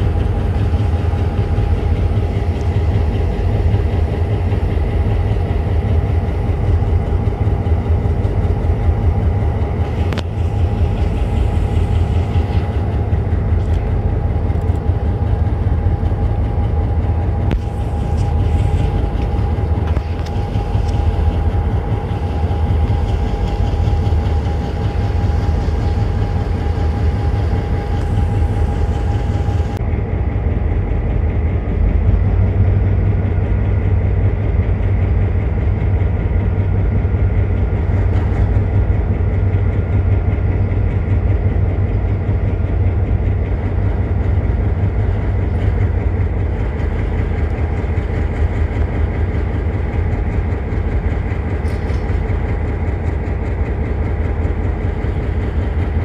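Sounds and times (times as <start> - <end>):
diesel locomotive engine idling: 0.0 - 56.0
steady whine: 0.0 - 56.0.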